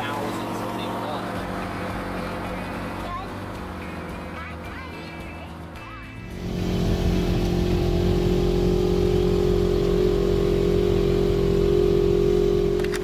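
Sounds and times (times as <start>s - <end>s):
vehicle engine droning: 0.0s - 13.0s.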